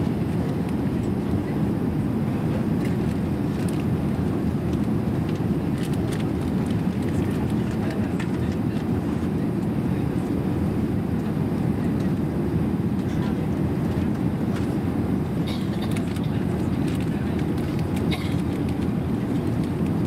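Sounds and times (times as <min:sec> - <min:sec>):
airplane cabin engine drone: 0:00.0 - 0:20.0.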